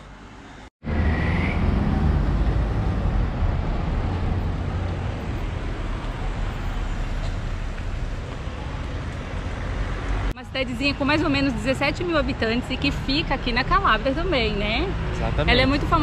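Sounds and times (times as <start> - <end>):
car engines passing: 0.8 - 16.0.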